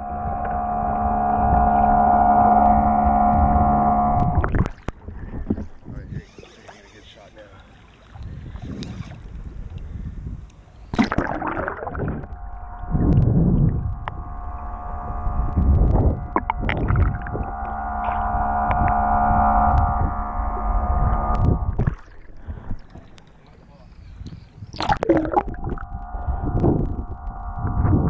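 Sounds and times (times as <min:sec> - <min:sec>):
steady droning hum: 0:00.0 - 0:04.6, 0:11.1 - 0:23.8, 0:24.9 - 0:28.0
muffled underwater water surges: 0:10.9 - 0:28.0.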